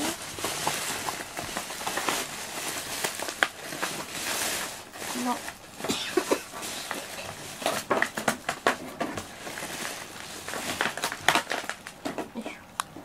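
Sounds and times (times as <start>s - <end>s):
plastic packaging crinkling: 0.0s - 12.3s.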